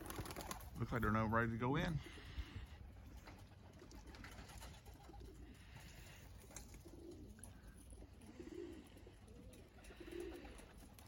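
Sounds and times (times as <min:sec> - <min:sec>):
pigeons cooing: 0:02.0 - 0:11.0.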